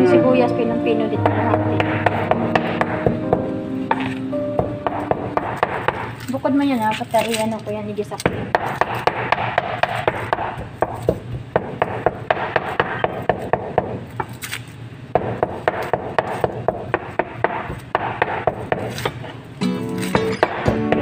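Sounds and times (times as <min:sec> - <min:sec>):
knife chopping on plastic board: 0:01.2 - 0:06.1, 0:08.2 - 0:14.3, 0:15.2 - 0:19.3.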